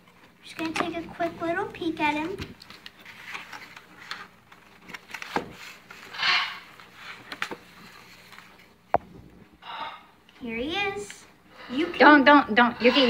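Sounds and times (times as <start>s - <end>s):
cardboard and paper rustling: 0.0s - 9.2s.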